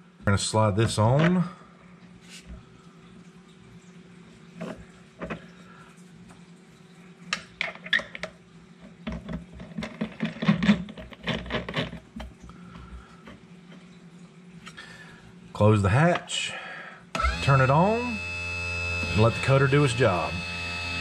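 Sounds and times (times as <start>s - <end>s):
small clicks and knocks: 7.3s - 12.4s.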